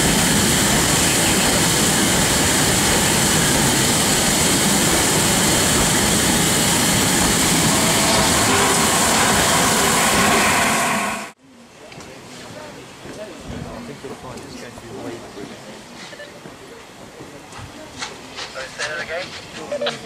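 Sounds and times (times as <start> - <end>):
steam locomotive hissing: 0.0 - 11.4.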